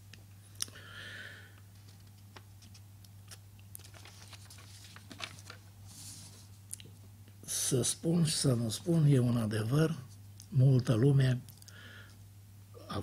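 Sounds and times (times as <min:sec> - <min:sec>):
low mains hum: 0:00.0 - 0:13.0
paper rustling: 0:01.7 - 0:06.6.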